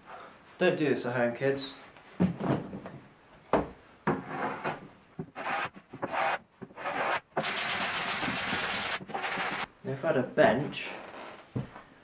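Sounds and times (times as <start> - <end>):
hand plane strokes on wood: 5.4 - 9.7.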